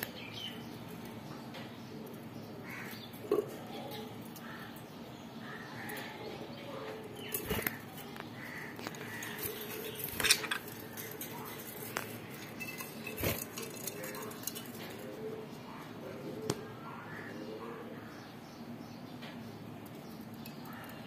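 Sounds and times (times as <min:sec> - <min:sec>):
cage clinks: 0:08.9 - 0:15.1.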